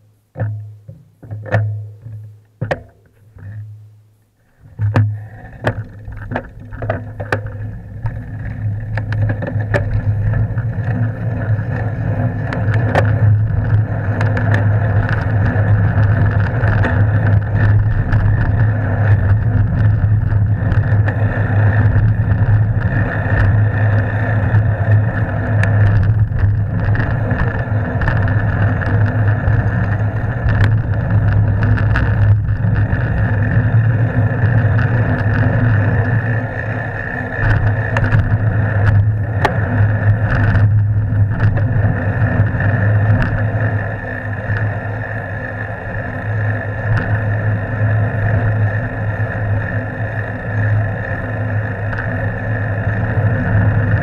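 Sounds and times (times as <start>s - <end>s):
sharp clicks and knocks: 0.3s - 3.7s, 4.6s - 36.3s, 37.2s - 43.5s
wind and road noise: 4.5s - 54.0s.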